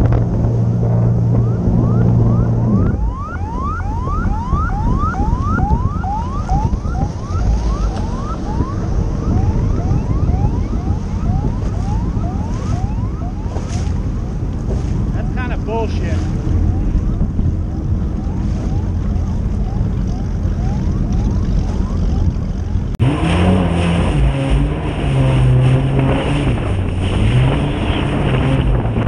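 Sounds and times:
engine humming: 0:00.0 - 0:29.0
water noise: 0:00.0 - 0:29.0
wind: 0:00.0 - 0:29.0
siren yelping: 0:01.3 - 0:14.4, 0:16.6 - 0:23.0.

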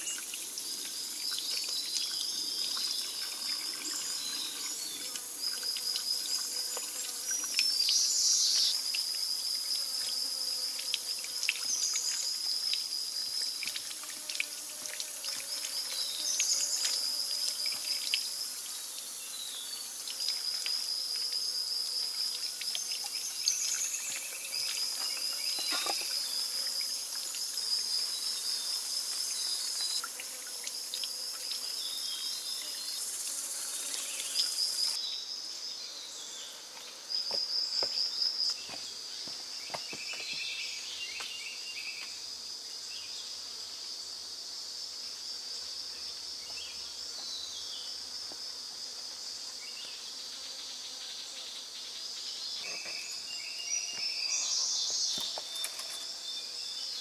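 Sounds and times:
high-pitched insect hiss: 0:00.0 - 0:57.0
insects chirring in trills: 0:00.0 - 0:57.0.

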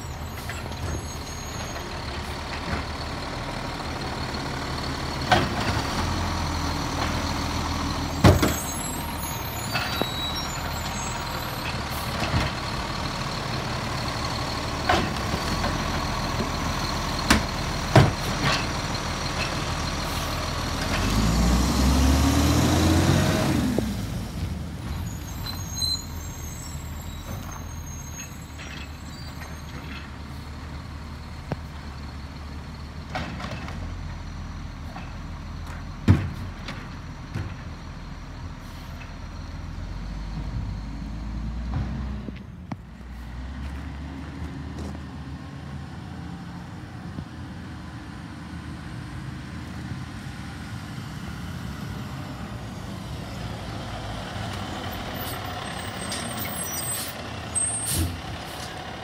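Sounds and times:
garbage truck diesel engine: 0:00.0 - 0:59.0
air brakes hissing: 0:56.0 - 0:58.8.

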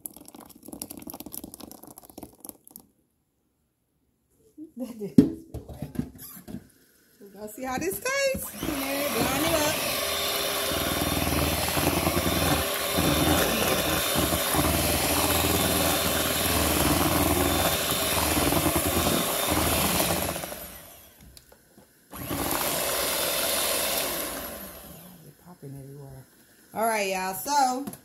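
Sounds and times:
electric hand mixer running: 0:07.7 - 0:21.2, 0:22.1 - 0:25.3.

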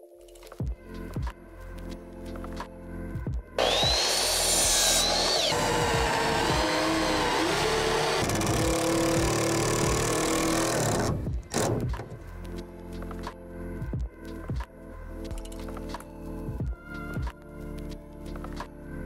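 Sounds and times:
miter saw cutting wood: 0:03.6 - 0:11.2
cordless drill into wood: 0:03.6 - 0:11.7.

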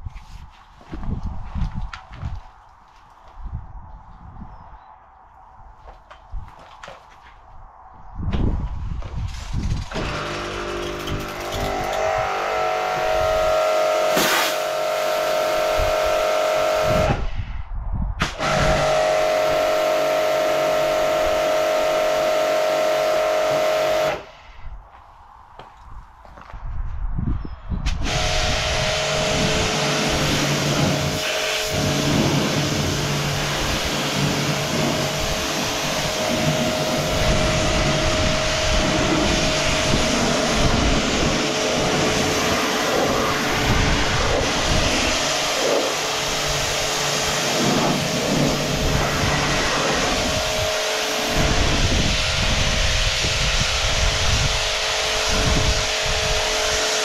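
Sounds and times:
high-pressure water jet hissing: 0:09.9 - 0:17.2, 0:18.2 - 0:24.5, 0:28.0 - 0:57.0
pressure washer motor humming: 0:09.9 - 0:17.2, 0:18.4 - 0:24.3, 0:28.0 - 0:57.0.

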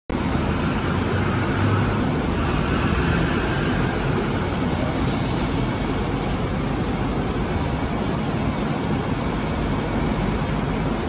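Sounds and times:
train car equipment humming: 0:00.1 - 0:11.0.

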